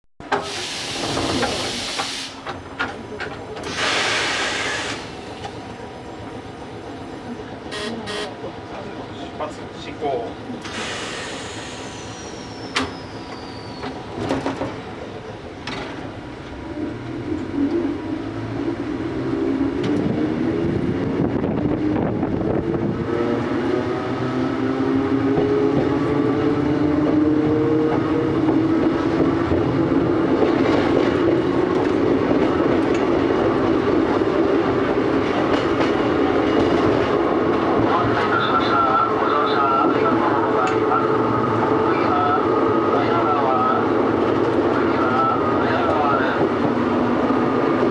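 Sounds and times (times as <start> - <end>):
wheels clacking on rails: 0.2 - 6.4, 12.7 - 17.9, 25.0 - 47.9.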